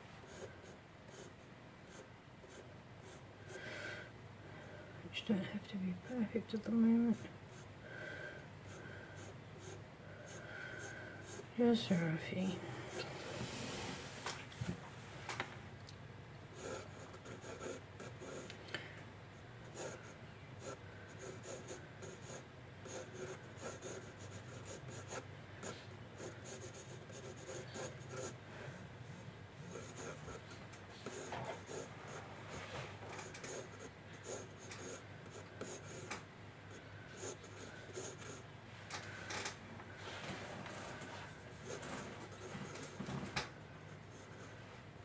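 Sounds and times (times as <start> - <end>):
pencil scratching on paper: 0.3 - 3.2, 8.7 - 11.5, 16.6 - 18.5, 19.7 - 28.4, 29.7 - 32.7, 33.3 - 36.1, 37.1 - 38.4, 41.6 - 43.0.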